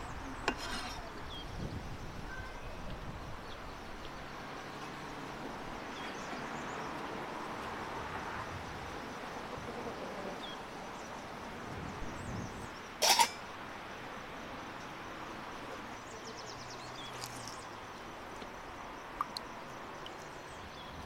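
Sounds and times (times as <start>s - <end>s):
outdoor background noise: 0.0s - 21.0s
faint bird chirps: 1.1s - 2.9s
metal lid clinking off pot: 13.0s - 13.4s.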